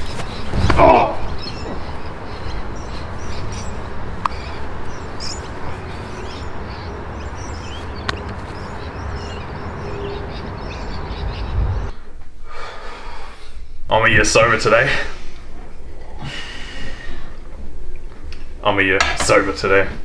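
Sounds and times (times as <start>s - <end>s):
steady low rumble: 0.0s - 12.1s
birds chirping: 0.0s - 12.2s.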